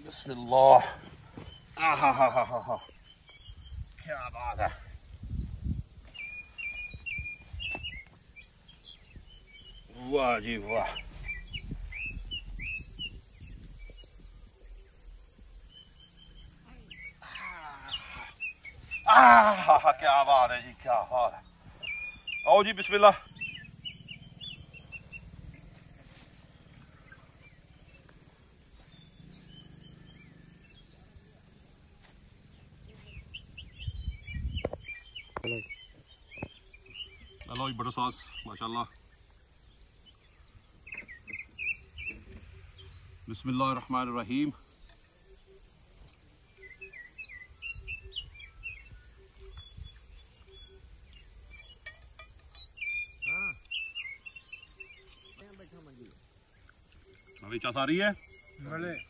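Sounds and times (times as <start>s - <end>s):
birds chirping: 0.0s - 59.0s
steady low rumble: 4.8s - 17.2s, 23.2s - 35.2s.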